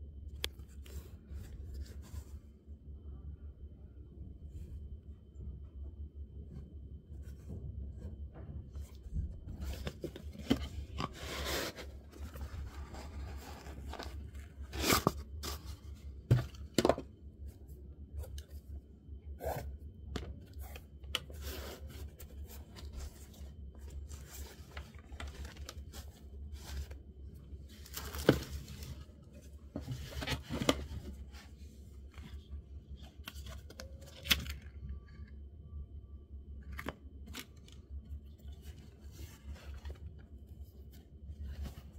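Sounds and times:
steady low hum: 0.0s - 41.9s
paper packing rustling: 9.6s - 17.0s, 21.3s - 27.0s, 27.7s - 31.5s.

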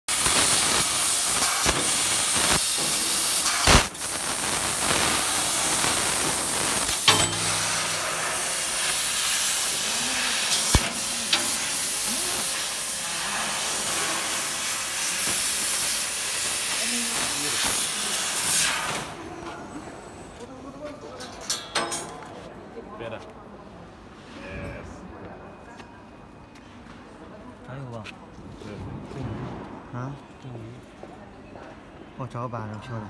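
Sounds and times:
laser cutter hissing: 0.1s - 19.3s.

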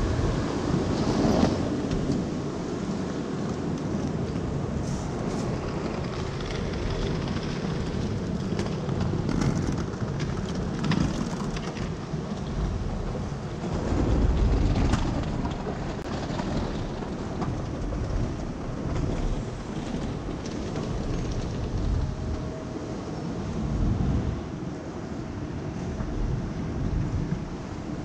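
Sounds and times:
low rumble: 11.4s - 22.7s.

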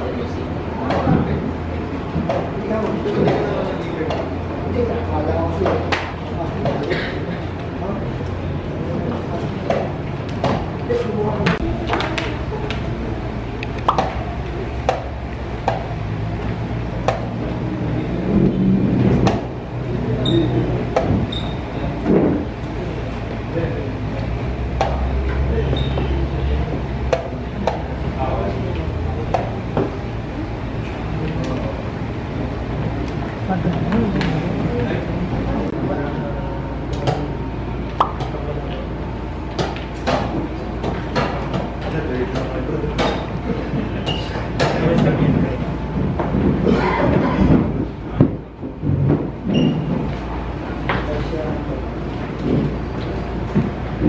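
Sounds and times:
steady hall hum: 0.0s - 54.0s.

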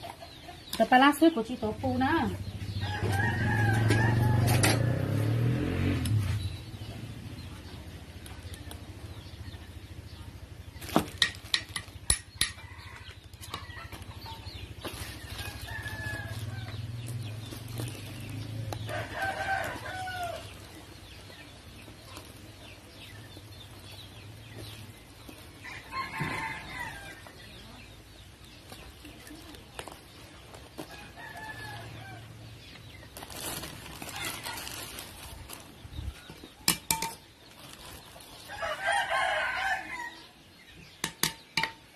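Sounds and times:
chickens clucking: 0.0s - 1.5s, 11.8s - 34.6s
rooster crowing: 2.8s - 5.2s, 18.9s - 20.5s, 25.6s - 27.4s, 38.5s - 40.4s.

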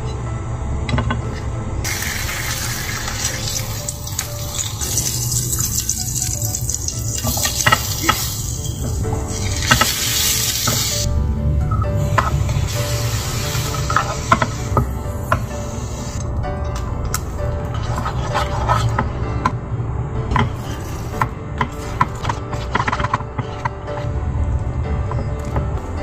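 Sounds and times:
soft background music: 0.0s - 26.0s
meat sizzling in frying pan: 1.9s - 11.0s.

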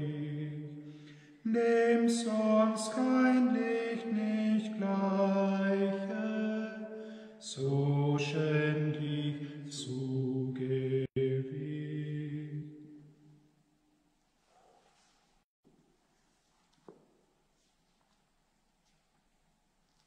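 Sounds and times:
hymn singing: 0.0s - 13.3s.

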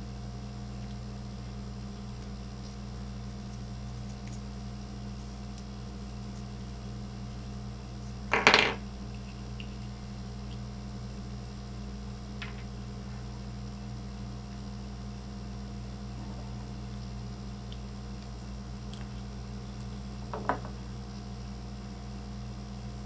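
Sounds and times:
low electrical hum: 0.0s - 23.0s
tool knocking on workbench: 20.3s - 20.8s.

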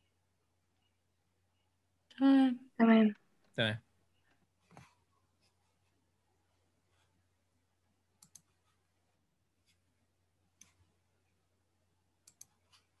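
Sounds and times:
computer mouse clicks: 8.2s - 8.6s, 10.6s - 10.8s, 12.2s - 12.9s.

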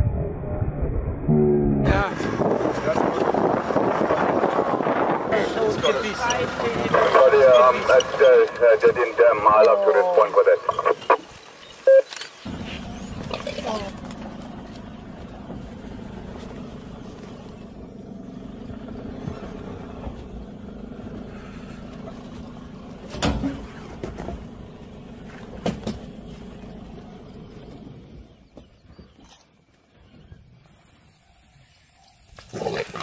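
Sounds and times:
vehicle engine idling: 12.4s - 29.2s.

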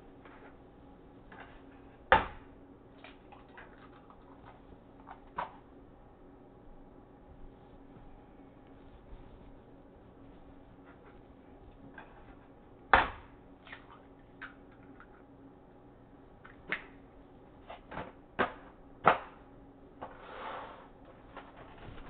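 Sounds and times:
rustling or scraping: 8.7s - 12.5s, 20.0s - 22.0s.

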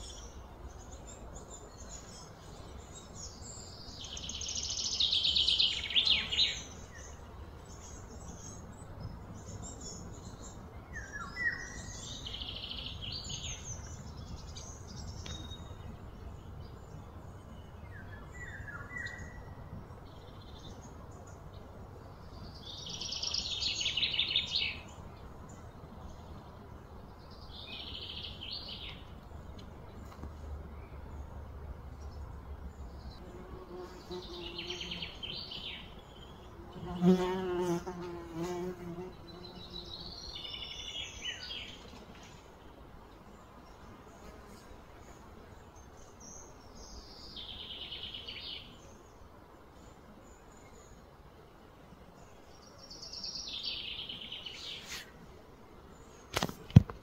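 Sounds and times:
insects buzzing: 33.1s - 57.0s.

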